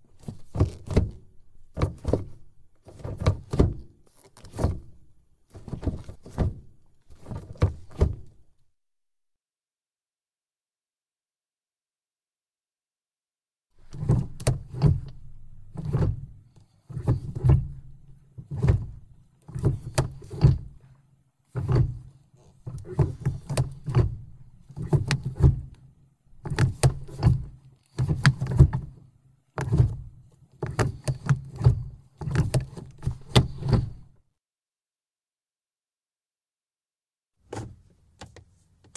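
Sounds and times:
shift lever clicking and clunking: 0:00.2 - 0:05.0, 0:13.9 - 0:20.9, 0:21.5 - 0:25.8, 0:26.4 - 0:29.0, 0:29.6 - 0:34.1.

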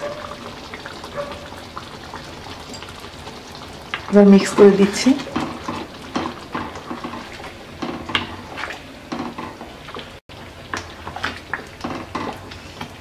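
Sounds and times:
thick gravy sloshing: 0:00.0 - 0:13.0
spoon scraping and knocking pan: 0:04.5 - 0:09.7.

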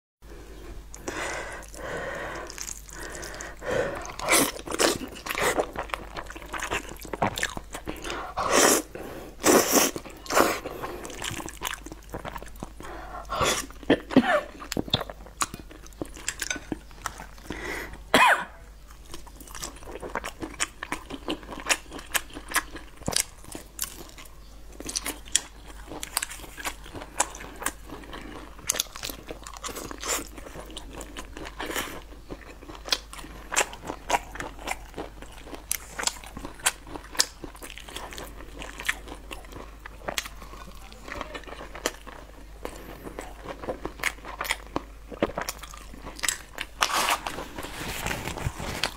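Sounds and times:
chewing with wet mouth clicks: 0:11.0 - 0:12.9, 0:14.5 - 0:17.6, 0:18.9 - 0:47.4.

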